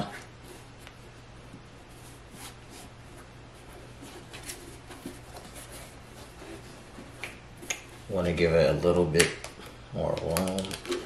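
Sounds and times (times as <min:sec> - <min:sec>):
low steady hum: 0:00.0 - 0:11.0
plastic film rustling: 0:10.0 - 0:11.0.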